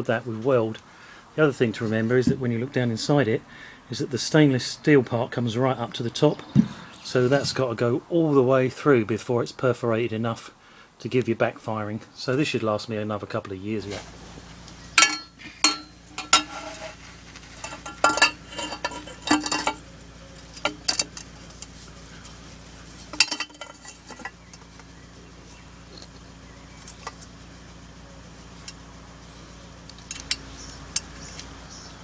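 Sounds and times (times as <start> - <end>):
faint steady hum: 0.0 - 32.0
metal parts clinking: 15.0 - 21.7, 23.0 - 24.8, 25.9 - 27.3, 29.9 - 31.4.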